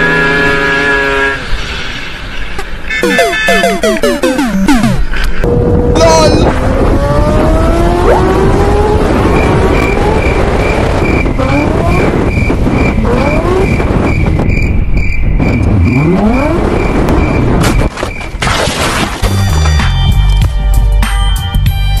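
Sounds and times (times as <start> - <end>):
faint high beep: 3.0 - 5.0
wind rush over microphone: 5.4 - 17.9.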